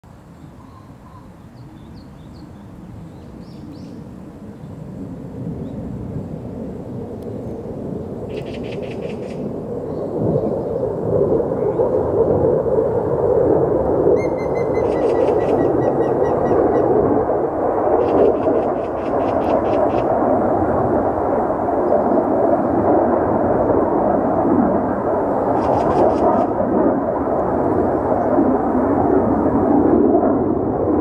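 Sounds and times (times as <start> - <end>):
steady low rumble: 1.6 - 31.0
woodpecker singing: 8.3 - 9.4, 14.2 - 17.0.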